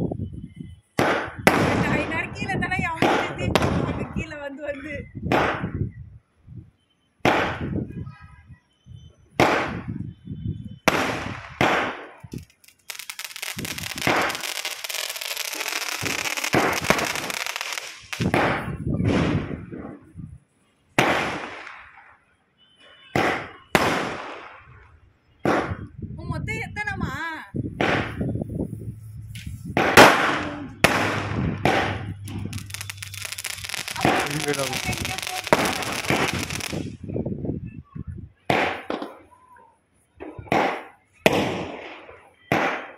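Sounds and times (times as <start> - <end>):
firework bangs with echo: 1.0 - 2.2, 10.9 - 19.7, 21.0 - 22.0, 27.8 - 28.3, 29.7 - 37.0, 40.5 - 42.9
firework crackling: 10.9 - 19.6, 28.9 - 37.0.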